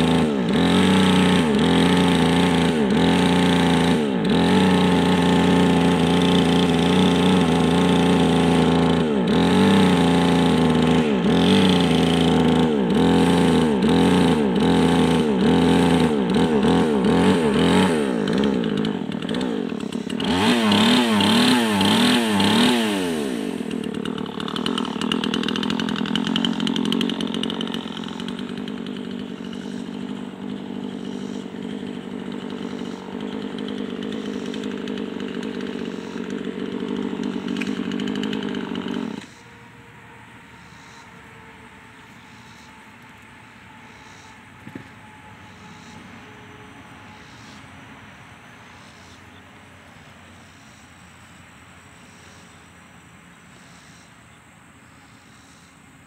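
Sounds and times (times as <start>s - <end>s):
chainsaw cutting log: 0.0s - 39.5s, 43.9s - 46.0s.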